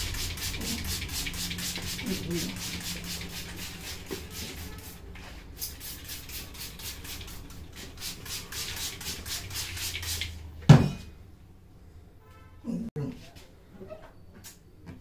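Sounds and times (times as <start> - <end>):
spray bottle misting: 0.0 - 10.4.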